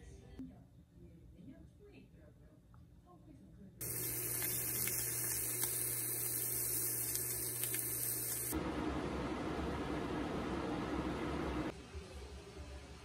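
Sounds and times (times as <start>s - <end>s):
low electrical hum: 0.0s - 11.7s
faint crackles: 3.8s - 8.6s
fish frying in oil: 3.8s - 8.6s.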